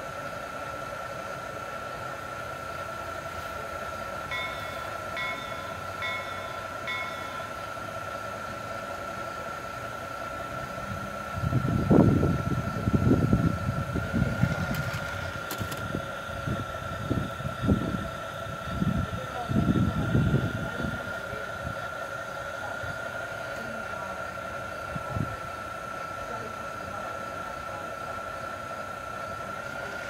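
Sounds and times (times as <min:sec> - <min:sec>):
model train wheels rumbling: 0:00.0 - 0:30.0.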